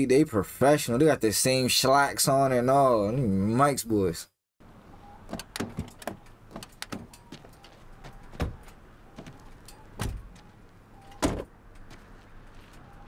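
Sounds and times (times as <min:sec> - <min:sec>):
car doors opening and shutting: 0:05.0 - 0:13.0
heavy thuds: 0:05.3 - 0:10.5.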